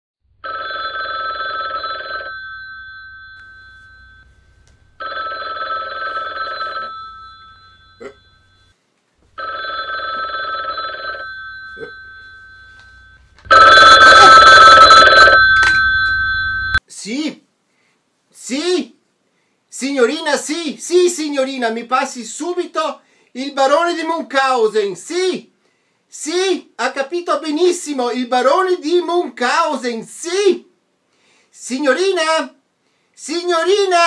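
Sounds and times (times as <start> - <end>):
telephone bell ringing: 0.4 - 8.8, 9.4 - 16.8.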